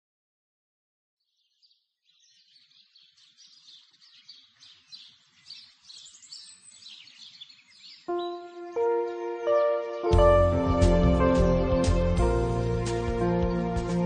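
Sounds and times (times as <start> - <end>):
birds chirping: 1.2 - 14.0.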